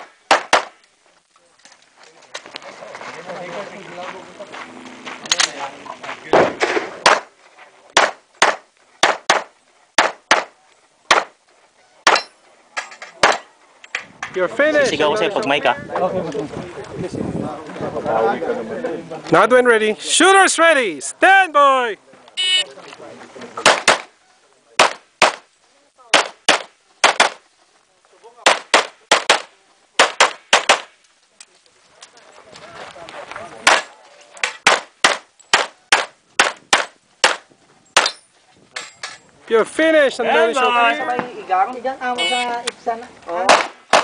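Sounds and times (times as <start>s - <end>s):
pistol shots: 0.0s - 0.8s, 8.0s - 10.5s, 23.6s - 24.1s, 24.8s - 25.4s, 26.1s - 27.4s, 28.5s - 30.9s, 34.6s - 37.4s, 43.5s - 44.0s.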